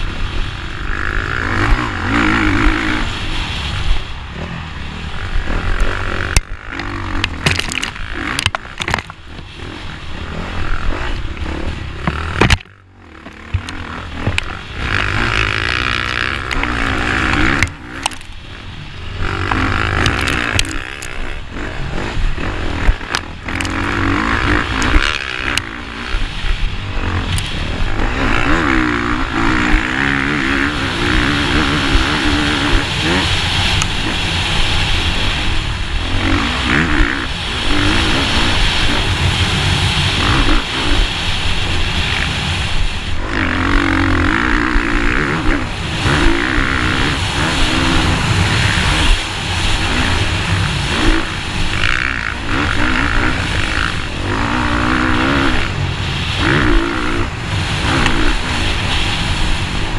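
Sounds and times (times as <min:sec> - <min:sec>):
dirt bike engine revving: 0:00.0 - 0:59.9
bike knocking over bumps: 0:12.0 - 0:14.5.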